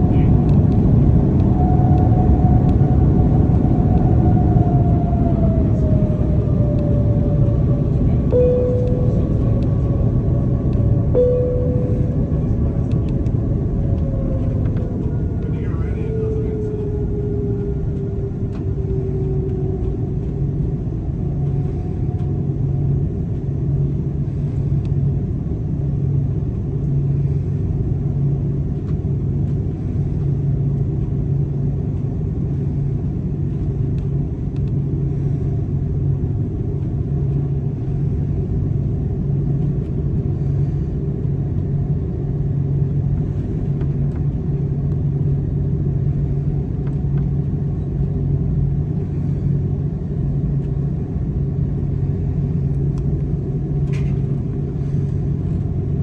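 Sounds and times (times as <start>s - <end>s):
airliner cabin drone: 0.0s - 56.0s
faint tone gliding down: 6.8s - 15.4s.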